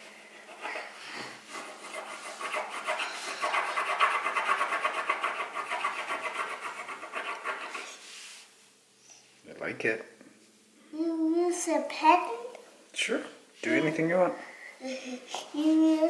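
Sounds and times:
crayon scribbling on paper: 0.5s - 8.1s.

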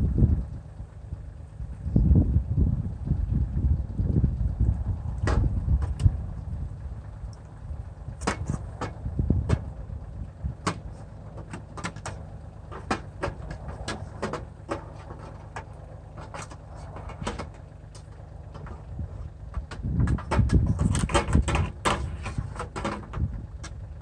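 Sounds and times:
tractor diesel engine idling: 0.0s - 24.0s
sharp clicks and knocks: 5.1s - 6.1s, 8.2s - 9.7s, 10.6s - 23.8s.

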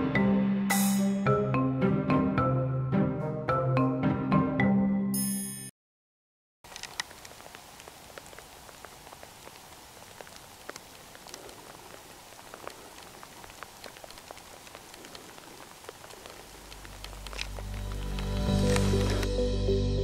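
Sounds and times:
rain pattering: 6.6s - 19.4s.

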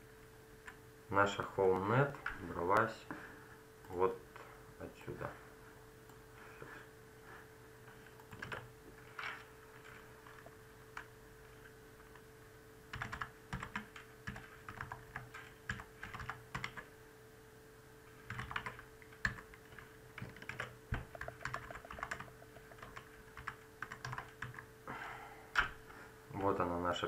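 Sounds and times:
faint steady hum: 0.0s - 27.0s
keyboard typing: 7.9s - 12.2s, 12.9s - 16.9s, 18.2s - 24.7s.

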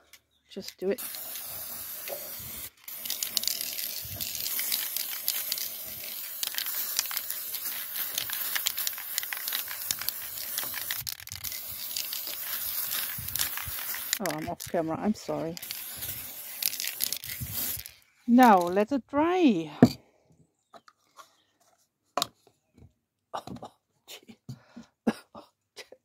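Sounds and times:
aerosol spray can hissing: 1.0s - 18.0s.

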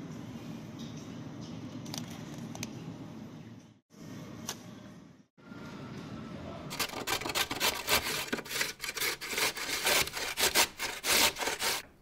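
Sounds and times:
grating on metal grater: 6.7s - 11.8s.

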